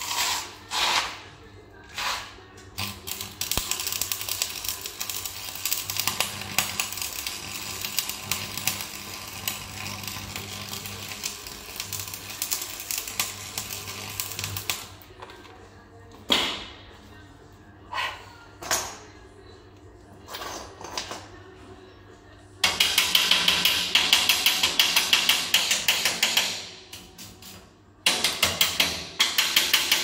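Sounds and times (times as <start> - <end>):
welding arc crackling: 2.8 - 15.0.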